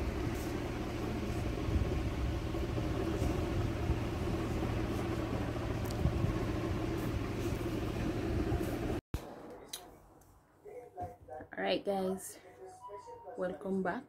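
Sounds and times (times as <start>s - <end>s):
shop background rumble: 0.0s - 10.2s.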